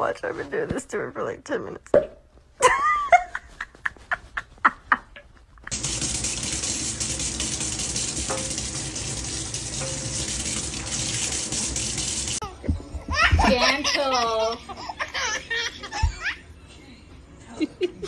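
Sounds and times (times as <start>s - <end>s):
tap running into metal sink: 5.7s - 12.4s.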